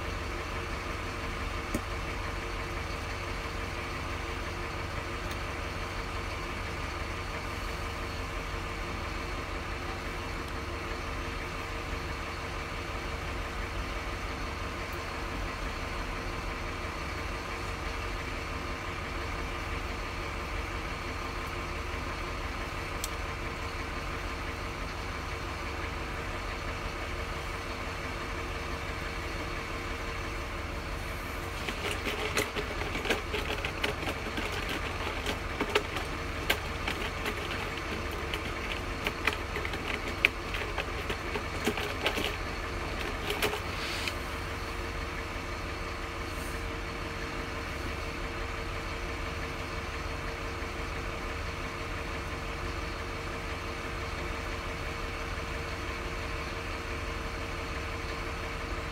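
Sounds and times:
light clicks and taps handling phone: 31.6 - 43.7.

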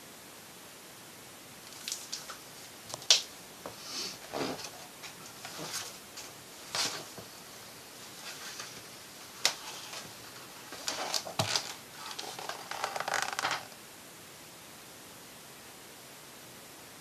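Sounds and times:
paper pages rustling: 4.2 - 13.8
book handling knocks: 10.7 - 13.7.

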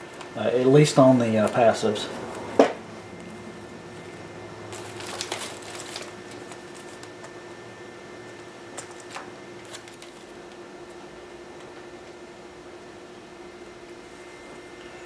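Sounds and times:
faint steady hum: 0.0 - 15.0
plastic bag crinkling: 4.7 - 7.4, 8.8 - 10.6.

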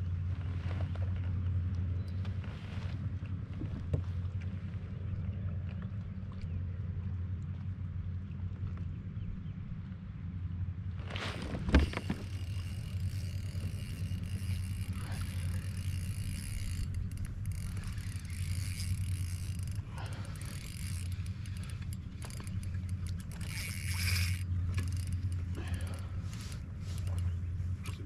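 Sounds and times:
low rumble: 0.0 - 28.0
fishing reel ticking: 11.8 - 27.5.

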